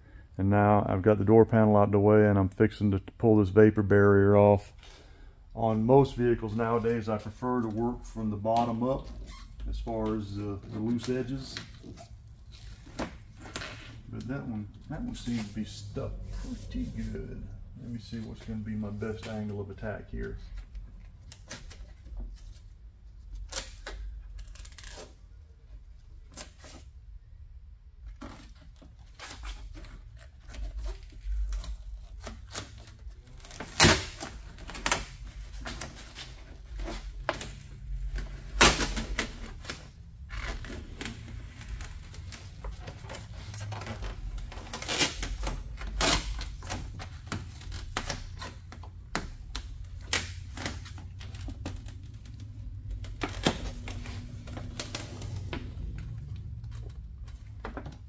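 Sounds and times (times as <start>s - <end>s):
plastic sheet crinkling and tearing: 28.2s - 55.5s
sharp plastic cracks: 31.3s - 36.0s, 43.7s - 55.1s.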